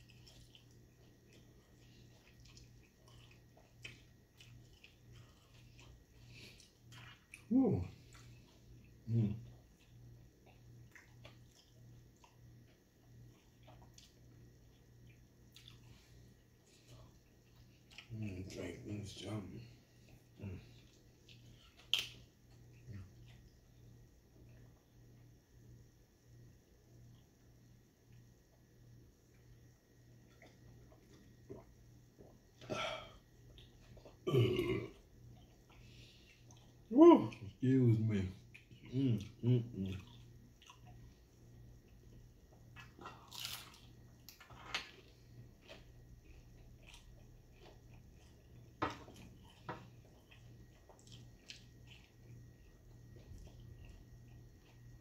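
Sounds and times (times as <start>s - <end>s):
chewing: 0.0s - 24.8s, 30.2s - 37.6s, 38.3s - 55.0s
faint steady hum: 0.0s - 55.0s
taco shell crunching: 21.2s - 22.7s, 42.6s - 55.0s
man burping loudly: 34.2s - 35.0s.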